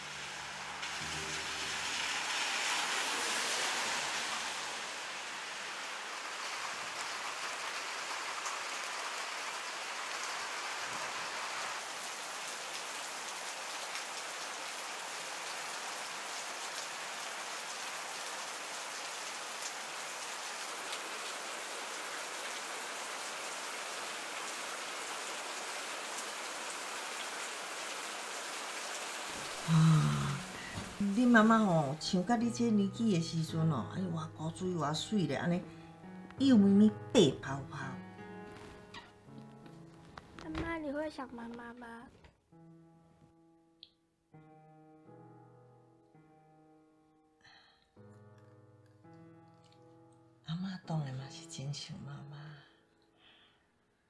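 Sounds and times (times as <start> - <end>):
steady rain falling: 0.0 - 32.5.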